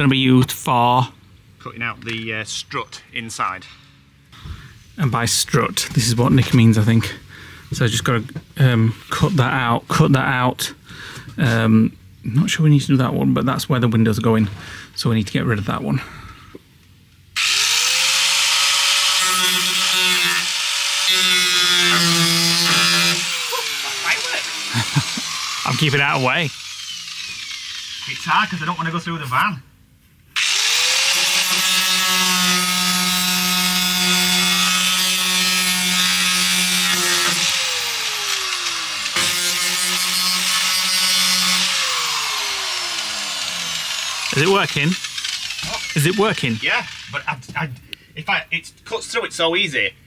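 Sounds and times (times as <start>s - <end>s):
angle grinder cutting steel: 17.4s - 29.2s, 30.4s - 47.6s.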